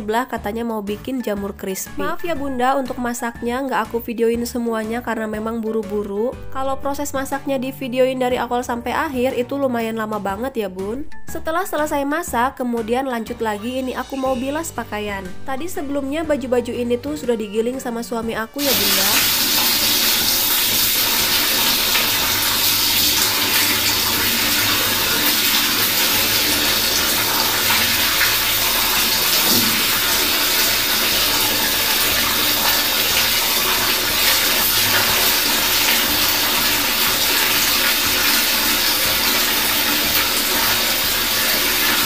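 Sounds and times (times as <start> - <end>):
water splashing in a basin: 18.6 - 42.0.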